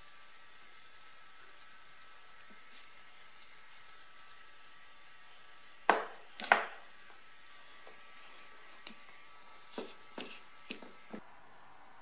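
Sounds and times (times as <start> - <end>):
metal parts knocking on workbench: 5.9 - 6.8.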